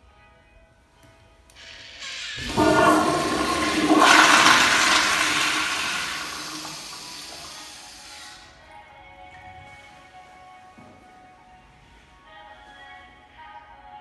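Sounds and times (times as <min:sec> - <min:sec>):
toilet flushing: 0:01.6 - 0:08.6.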